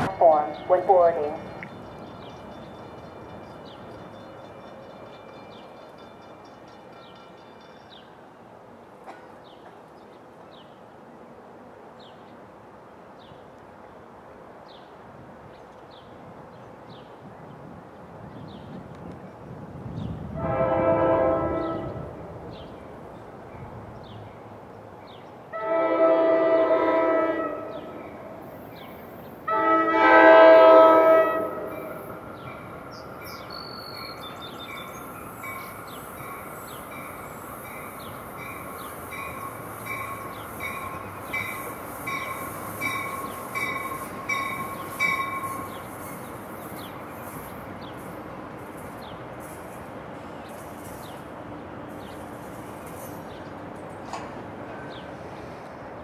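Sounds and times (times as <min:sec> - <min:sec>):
train rumbling: 0:00.0 - 0:56.0
train bell ringing: 0:01.2 - 0:08.2, 0:32.6 - 0:46.2
train horn blasts: 0:20.3 - 0:22.2, 0:25.5 - 0:28.1, 0:29.5 - 0:32.0.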